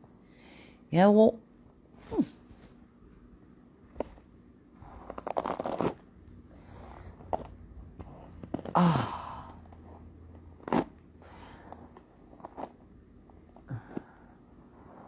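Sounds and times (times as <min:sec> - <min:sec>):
person grunting: 0:08.7 - 0:09.6.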